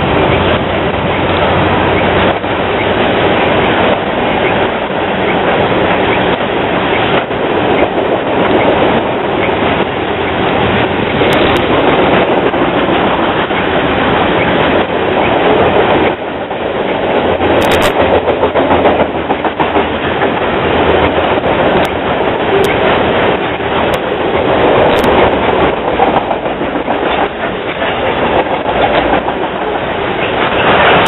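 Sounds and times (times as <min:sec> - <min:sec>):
freight train wheels clattering: 0:00.0 - 0:31.0.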